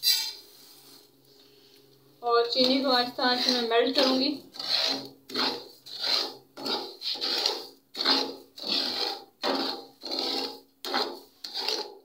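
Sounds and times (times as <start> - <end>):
spatula scraping sugar in a pan: 2.4 - 12.0.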